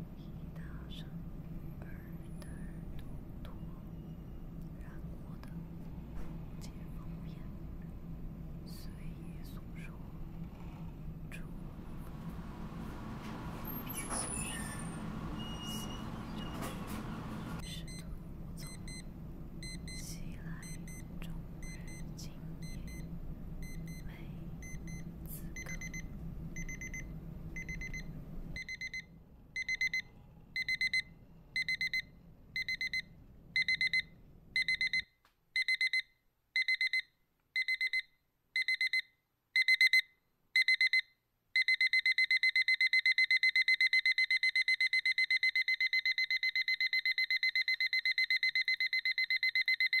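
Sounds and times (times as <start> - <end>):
high-pitched alarm beeping: 13.9 - 16.8, 17.6 - 18.0, 18.6 - 20.0, 22.6 - 24.0, 25.6 - 35.0, 40.6 - 50.0.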